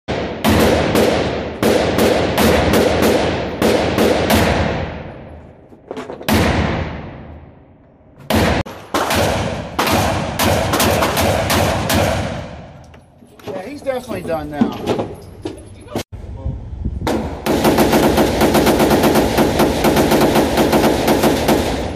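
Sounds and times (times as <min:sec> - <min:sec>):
pistol shots with echo: 0:00.1 - 0:05.2, 0:08.3 - 0:12.8
shotgun shots: 0:00.1 - 0:05.3, 0:06.3 - 0:07.4, 0:08.2 - 0:12.8, 0:17.1 - 0:21.9.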